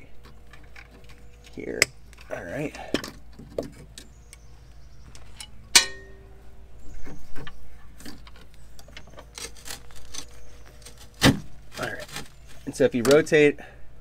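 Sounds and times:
sharp metallic clink: 5.7 - 6.4.

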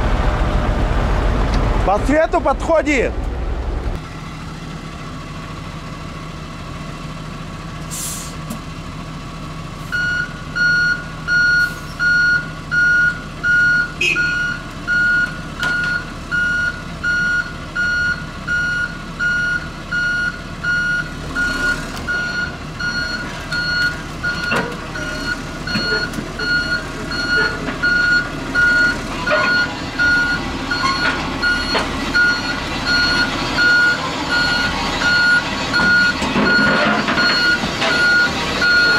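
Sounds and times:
diesel engine running: 0.0 - 38.9
tractor reverse alarm beeping: 9.9 - 38.9.

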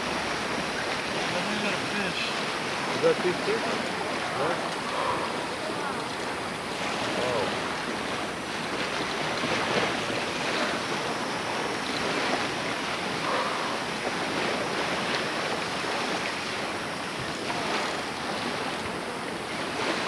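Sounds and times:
ocean surf washing: 0.0 - 20.0.

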